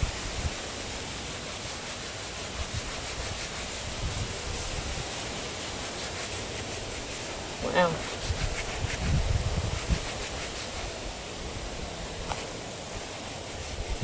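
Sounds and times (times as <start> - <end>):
sock rubbing plastic headlight: 5.8 - 10.9.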